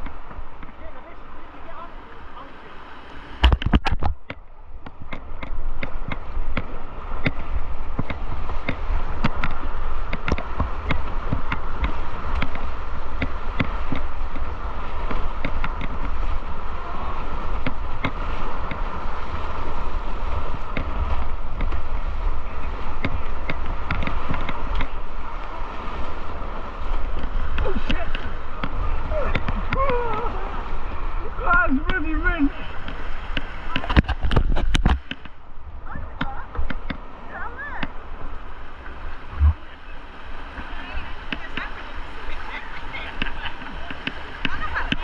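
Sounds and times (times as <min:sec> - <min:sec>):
river water rushing: 0:00.0 - 0:45.0
wind buffeting microphone: 0:03.3 - 0:45.0
sharp clicks and knocks: 0:03.4 - 0:12.6, 0:23.0 - 0:25.0, 0:33.3 - 0:35.4.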